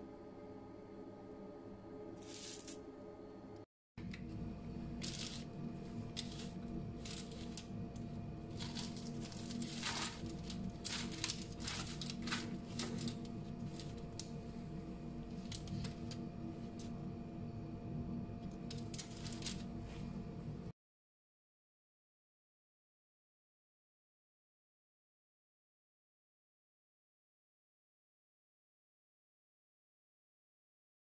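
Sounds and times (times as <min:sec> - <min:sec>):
steady low hum: 0:00.0 - 0:20.7.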